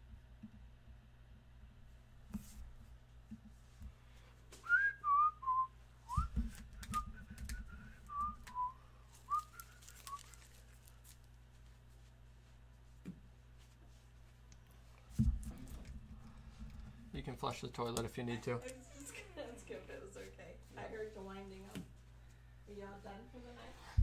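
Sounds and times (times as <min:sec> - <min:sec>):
person whistling: 0:04.6 - 0:10.4.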